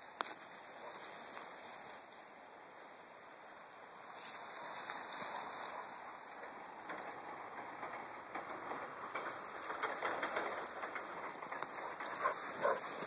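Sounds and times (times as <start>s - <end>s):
twigs rustling: 0.0s - 2.4s, 4.0s - 6.4s, 9.2s - 13.0s.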